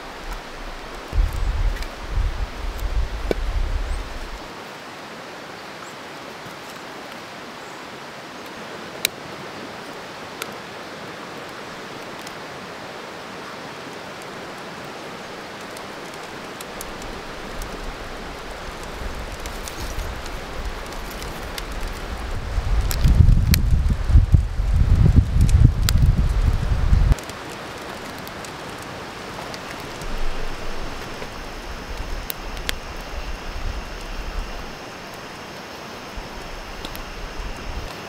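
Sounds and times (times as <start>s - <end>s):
wind rumble on microphone: 0.0s - 4.5s, 16.8s - 27.2s, 29.7s - 35.3s, 36.1s - 38.0s
creek rushing: 0.0s - 38.0s
faint clicks: 36.4s - 38.0s.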